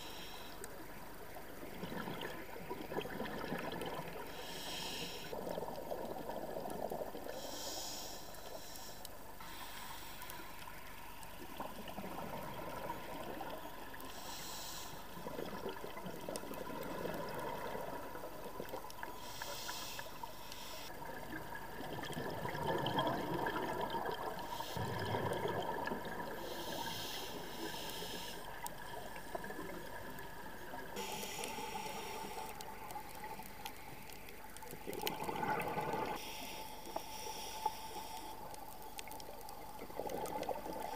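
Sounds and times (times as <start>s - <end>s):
regulator inhale hiss: 0.0s - 0.7s, 4.2s - 5.4s, 7.3s - 10.8s, 14.0s - 15.3s, 19.1s - 20.9s, 24.4s - 25.0s, 26.3s - 28.8s, 31.0s - 34.3s, 36.1s - 39.1s
exhaled air bubbling: 1.4s - 7.6s, 11.4s - 20.2s, 20.8s - 36.4s, 38.0s - 40.9s.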